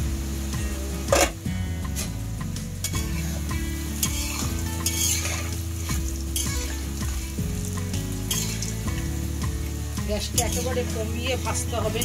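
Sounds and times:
snacks sizzling in hot oil: 0.0 - 12.0
metal spoon scraping pan: 4.0 - 7.0, 8.3 - 8.8.

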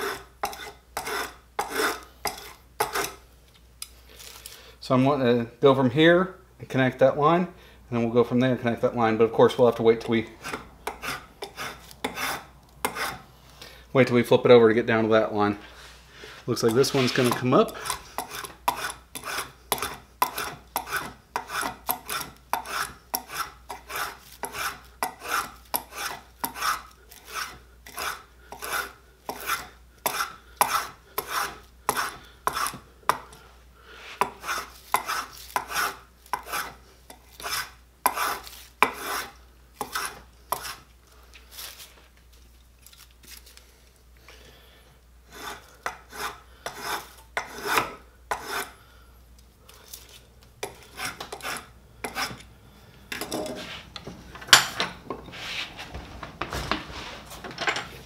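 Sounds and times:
spokeshave scraping wood: 10.3 - 13.3, 15.6 - 32.8, 53.3 - 58.0.

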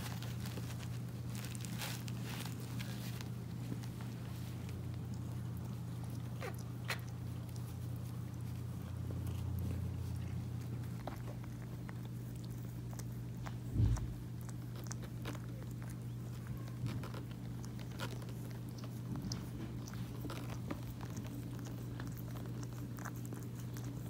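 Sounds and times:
cat licking and chewing: 0.0 - 24.0
steady low hum: 0.0 - 24.0
dull bump: 13.7 - 14.3.

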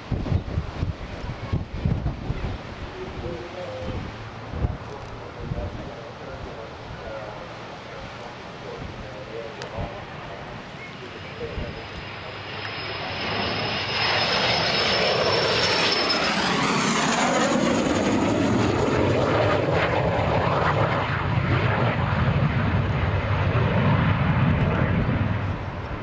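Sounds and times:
low jet rumble: 0.0 - 26.0
rushing jet noise: 0.0 - 26.0
jet engine whistle: 10.8 - 17.7.

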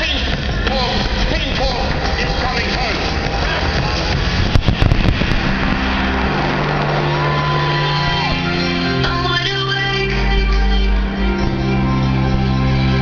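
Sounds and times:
fireworks bursting: 0.3 - 9.1.

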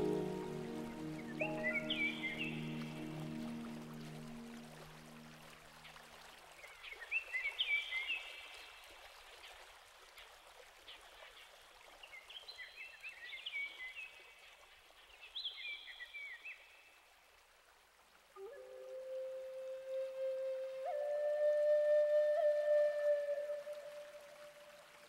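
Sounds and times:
steady hiss: 0.0 - 5.7.

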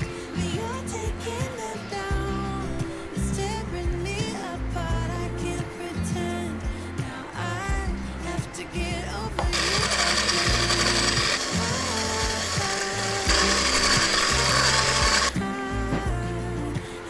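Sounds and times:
background music: 0.0 - 17.0
stick blender whipping cream: 9.4 - 15.3.

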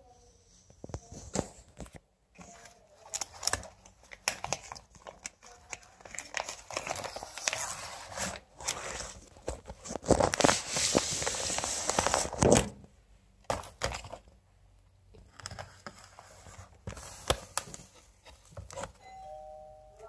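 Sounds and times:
plastic packaging crinkling: 2.5 - 12.7.

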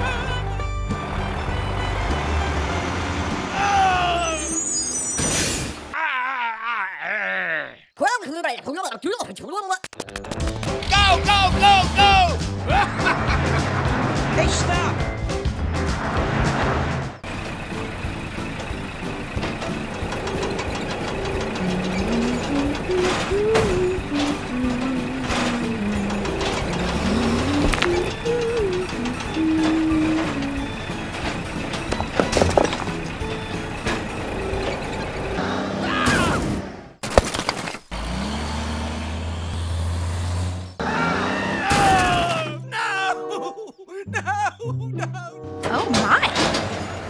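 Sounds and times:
truck engine running: 0.0 - 4.7, 10.1 - 35.8, 36.5 - 41.1
clatter of sharp knocks: 30.9 - 34.8.

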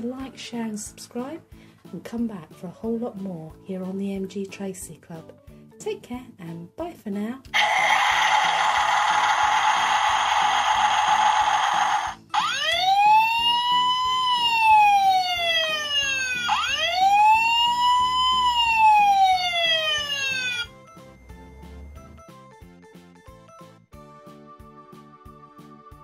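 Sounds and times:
quiet background music: 0.0 - 26.0
toy siren wailing: 7.6 - 20.8.

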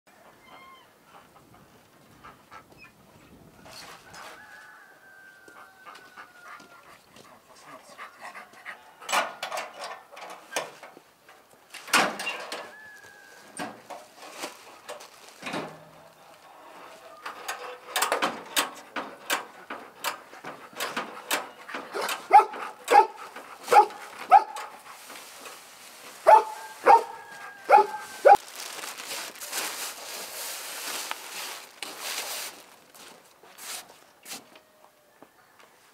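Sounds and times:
dog barking: 21.9 - 24.7, 26.2 - 28.4.

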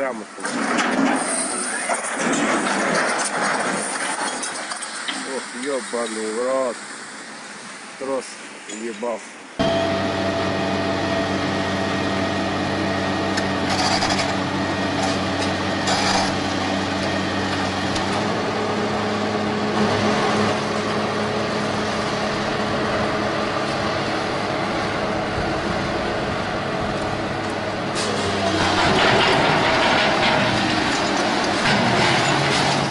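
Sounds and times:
excavator diesel engine running: 9.6 - 32.9.

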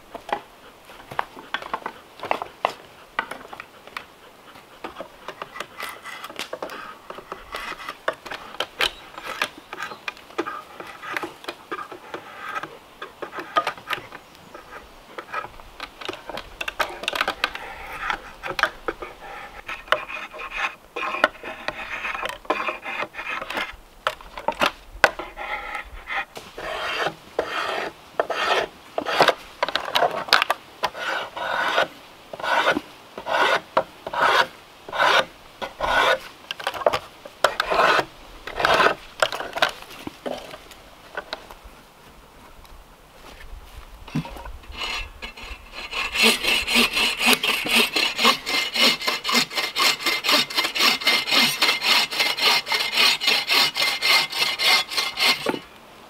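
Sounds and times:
drawknife scraping wood: 1.1 - 14.0, 14.6 - 40.6, 44.1 - 55.6.

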